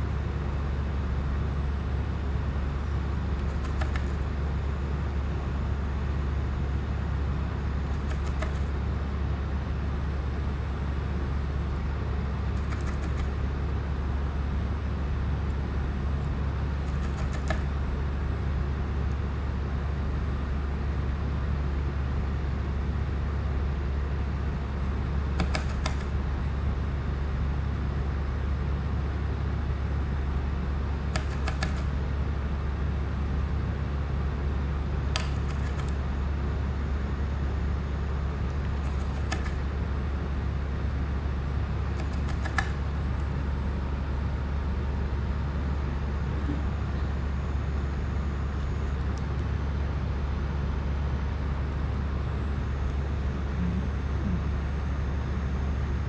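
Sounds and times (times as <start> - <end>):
constant background noise: 0.0 - 56.0
steady low hum: 0.0 - 56.0
faint short clicks: 3.4 - 4.2.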